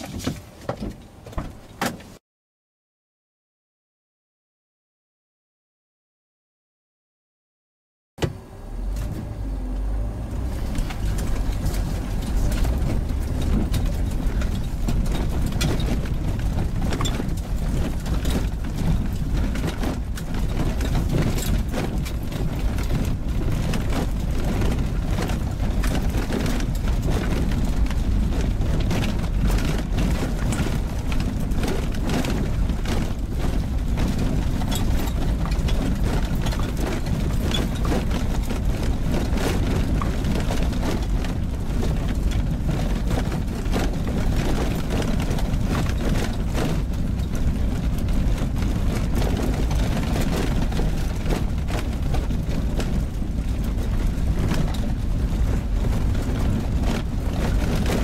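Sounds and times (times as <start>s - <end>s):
car engine and tyres rumbling: 0.0s - 2.2s, 8.2s - 58.0s
gravel ticks and knocks: 10.6s - 58.0s.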